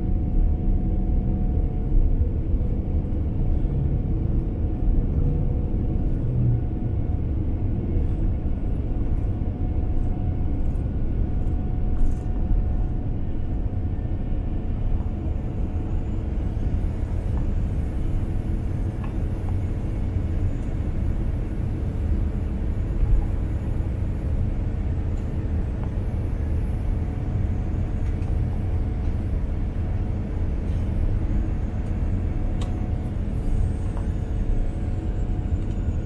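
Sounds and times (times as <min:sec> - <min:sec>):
jet engine rumble in cabin: 0:00.0 - 0:36.0
faint high whine: 0:11.6 - 0:36.0.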